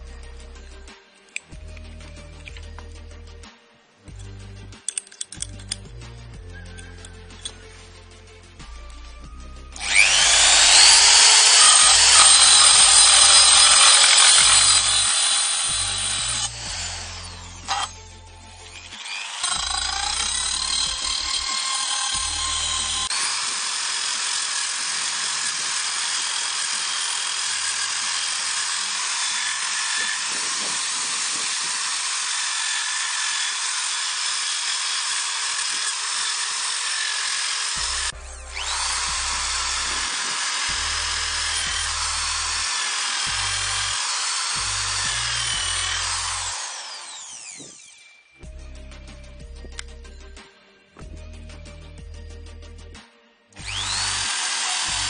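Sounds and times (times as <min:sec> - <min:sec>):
background music: 0:00.0 - 0:46.8, 0:48.3 - 0:55.0
electric drill grinding wood: 0:08.7 - 0:48.4, 0:53.6 - 0:55.0.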